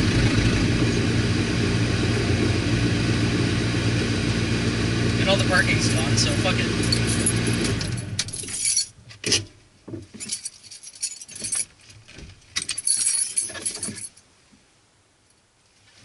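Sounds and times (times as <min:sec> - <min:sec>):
car engine cutting off: 0:00.0 - 0:08.4
keys jangling: 0:06.8 - 0:09.0, 0:10.2 - 0:11.8, 0:12.6 - 0:14.2.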